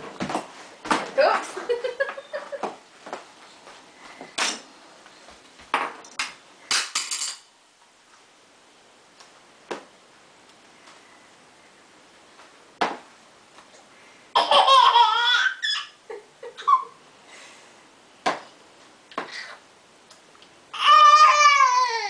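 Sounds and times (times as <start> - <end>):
toddler squealing with laughter: 14.4 - 16.0, 16.6 - 17.0.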